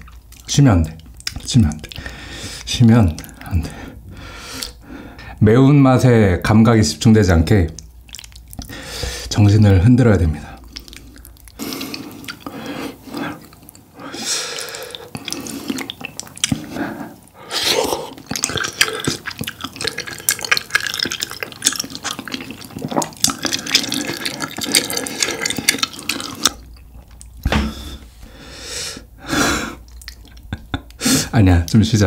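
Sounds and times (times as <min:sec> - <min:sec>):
chewing noodles: 0:07.8 - 0:09.2, 0:10.5 - 0:27.4, 0:29.8 - 0:31.0
slurping noodles: 0:10.6 - 0:27.2.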